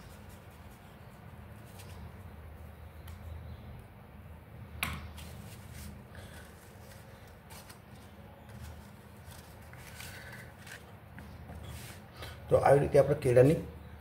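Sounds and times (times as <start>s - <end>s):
paper crinkling: 5.2s - 12.0s.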